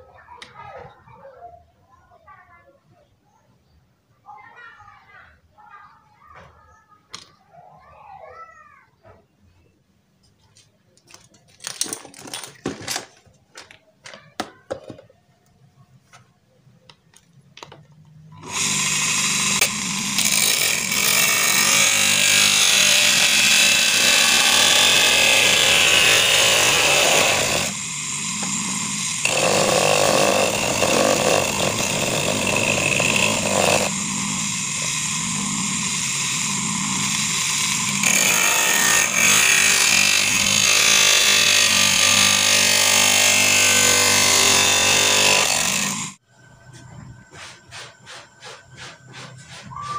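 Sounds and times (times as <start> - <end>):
cutting disc grinding pipe: 18.3 - 46.2.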